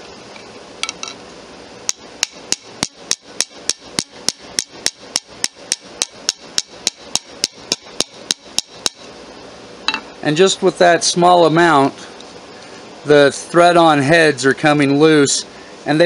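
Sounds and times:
small hammer striking metal pin: 1.9 - 9.0.

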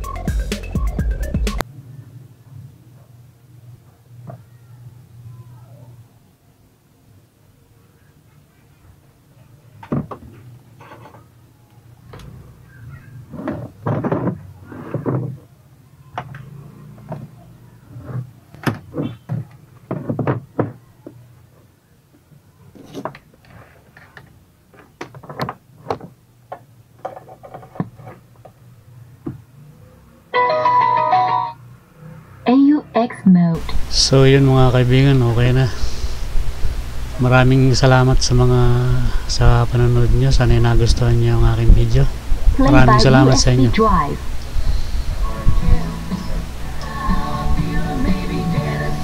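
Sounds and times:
knocks and clicks of handling: 13.4 - 15.4, 18.2 - 21.2, 22.8 - 28.6.

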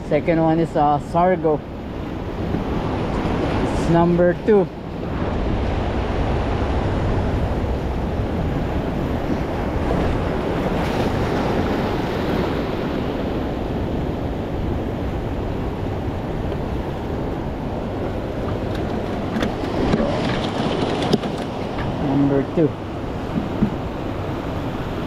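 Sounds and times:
wind on microphone: 0.0 - 25.0
surf breaking over rocks: 14.4 - 25.0.

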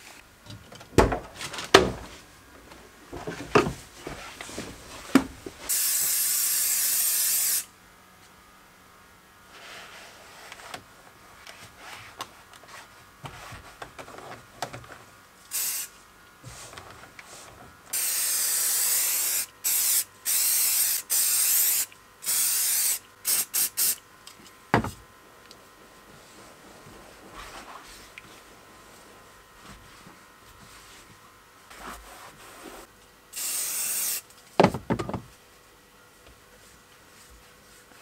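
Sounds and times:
aerosol spray hissing: 5.7 - 7.7, 15.5 - 15.9, 18.0 - 24.0, 33.4 - 34.2.

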